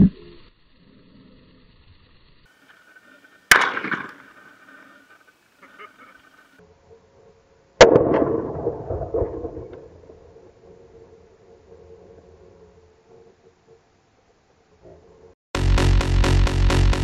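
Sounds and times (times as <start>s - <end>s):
rifle shots with echo: 3.5s - 4.8s, 7.8s - 10.4s.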